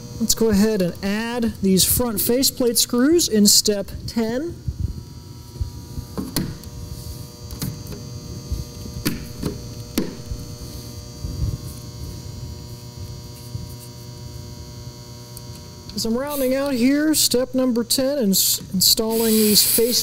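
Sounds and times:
electrical mains hum: 0.0 - 20.0.

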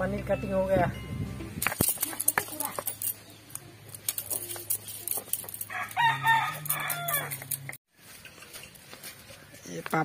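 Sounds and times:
rooster crowing: 5.7 - 7.5.

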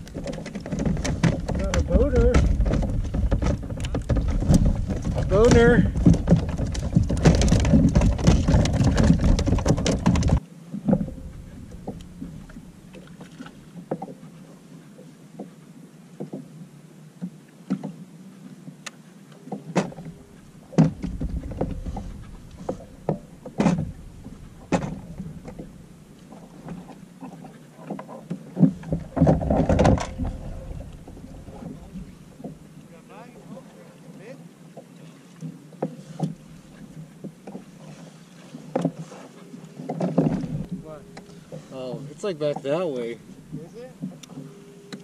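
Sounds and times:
tackle clicking on plastic kayak: 0.0 - 14.2, 18.8 - 32.7, 39.8 - 45.0.

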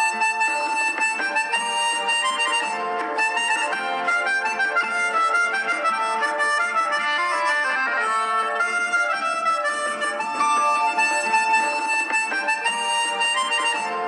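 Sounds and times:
instrumental background music: 0.0 - 14.0.

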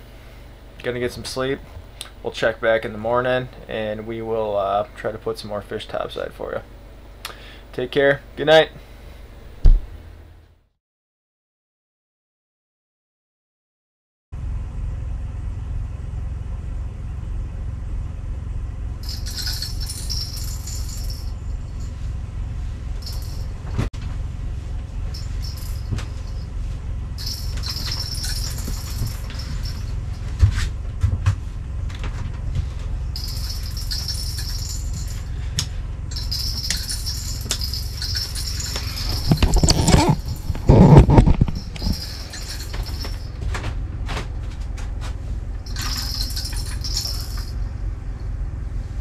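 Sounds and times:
heavy knocks and thumps: 9.6 - 9.9, 25.4 - 26.4, 27.4 - 33.4
steady low rumble: 14.4 - 49.0
fishing reel jingling rattle: 19.0 - 21.3, 25.1 - 26.4, 27.2 - 30.0, 33.2 - 35.4, 36.1 - 43.4, 45.6 - 47.6.

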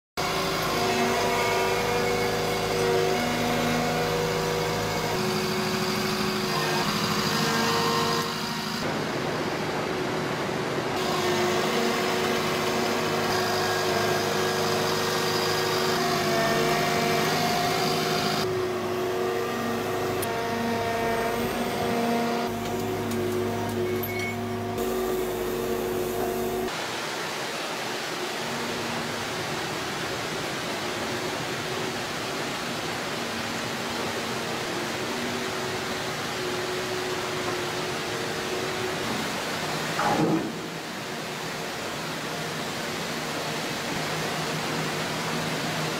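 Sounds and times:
hydraulic whining tones: 0.2 - 8.9, 11.0 - 26.7
diesel engine running under load: 11.0 - 26.7.

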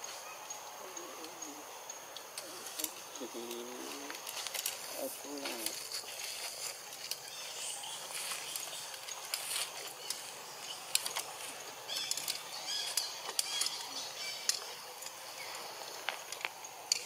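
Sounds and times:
rustling: 2.4 - 17.0
high animal chirps: 11.8 - 14.9.

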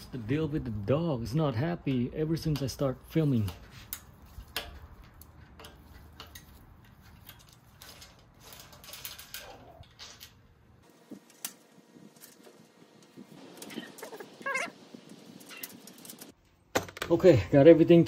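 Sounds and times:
dog whining: 13.6 - 14.8.

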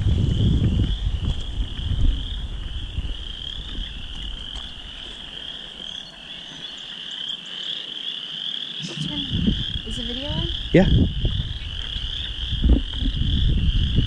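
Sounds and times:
low rumble: 0.0 - 4.9, 8.8 - 14.0
chorus of frogs trilling: 0.0 - 14.0.

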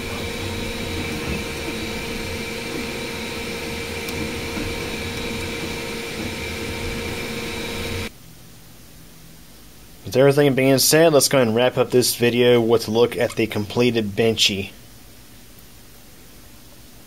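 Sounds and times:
printer fans and motors whirring: 0.0 - 8.1
steady tones: 0.0 - 8.1.

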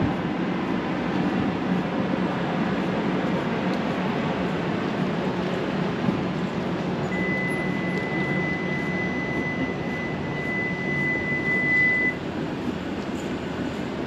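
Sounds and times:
city background noise: 0.0 - 14.0
steady high tone: 7.0 - 12.2.

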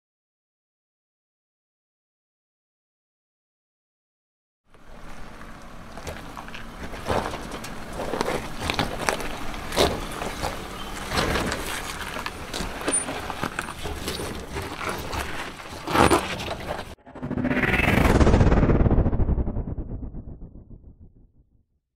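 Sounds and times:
stones crunching under tyres: 4.7 - 17.0
car engine running low: 4.7 - 21.4.

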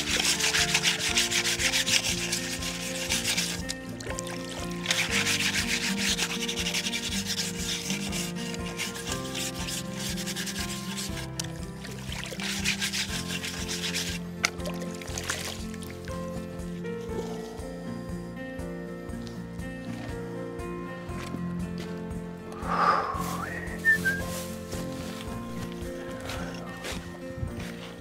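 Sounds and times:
roots scrubbed in water: 0.0 - 17.7, 22.6 - 28.0.

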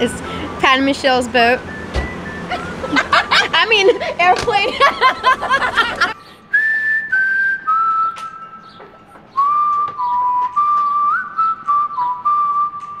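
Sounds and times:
person whistling a slow tune: 0.0 - 0.9, 1.5 - 3.2, 6.2 - 13.0.

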